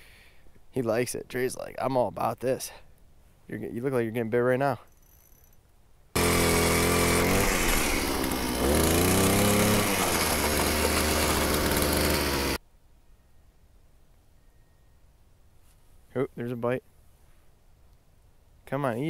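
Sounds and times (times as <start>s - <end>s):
power ice auger drilling: 6.2s - 12.6s.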